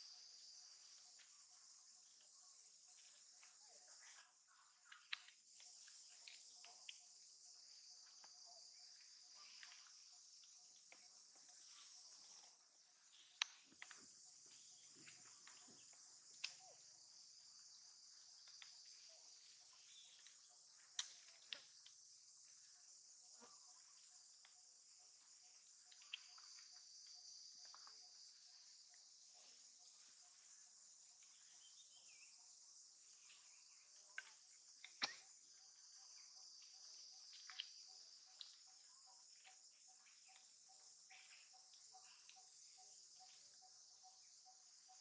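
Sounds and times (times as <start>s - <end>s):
high-pitched insect chorus: 0.0s - 45.0s.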